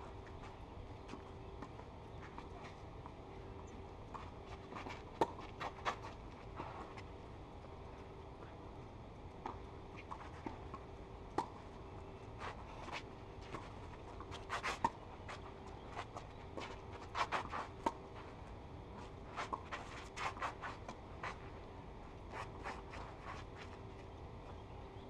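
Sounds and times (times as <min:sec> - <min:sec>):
shoes scuffing on clay: 0:04.2 - 0:07.1, 0:12.4 - 0:21.5, 0:22.2 - 0:24.1.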